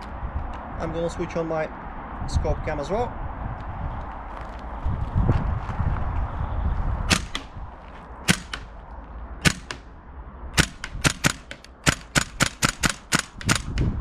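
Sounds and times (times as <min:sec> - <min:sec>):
airsoft gun shots: 0:07.1 - 0:07.6, 0:08.3 - 0:08.7, 0:09.4 - 0:09.9, 0:10.6 - 0:13.9.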